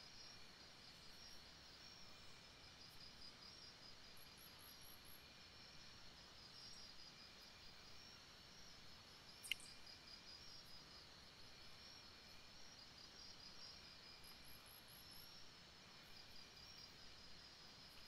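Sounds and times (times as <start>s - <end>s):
sharp click: 9.4s - 9.7s.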